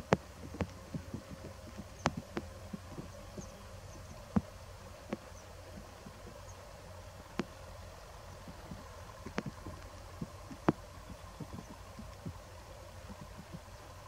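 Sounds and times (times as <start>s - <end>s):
sharp clicks and knocks: 0.0s - 6.5s, 8.4s - 12.4s
low steady hum: 0.0s - 14.0s.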